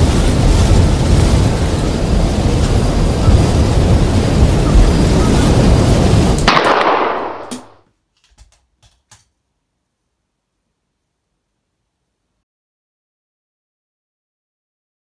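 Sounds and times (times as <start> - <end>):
rumbling wash of noise: 0.0 - 7.8
sharp echoing crack: 6.3 - 7.8.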